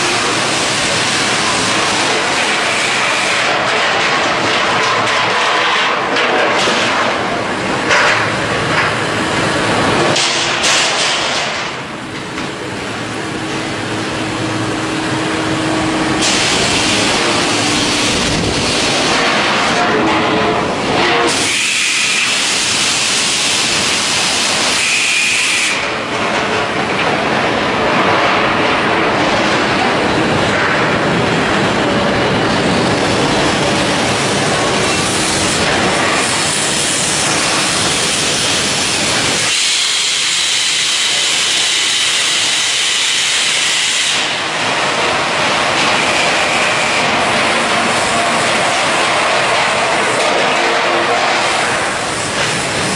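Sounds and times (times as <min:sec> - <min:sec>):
machinery hissing: 0:00.0 - 0:03.6, 0:08.6 - 0:19.9, 0:20.6 - 0:26.1, 0:29.3 - 0:52.9
low machinery rumble: 0:11.8 - 0:21.2.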